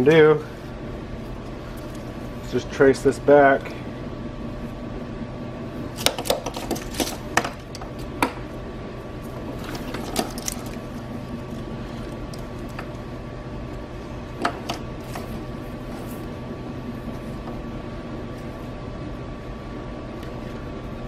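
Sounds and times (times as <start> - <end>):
steady background hum: 0.0 - 21.0
wires and connectors rustling: 6.0 - 8.1, 9.2 - 13.1.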